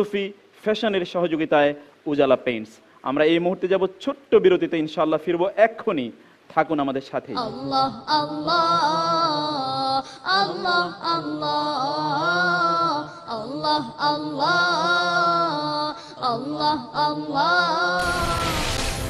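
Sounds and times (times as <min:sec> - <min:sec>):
unaccompanied vocal chant: 0:07.3 - 0:19.0.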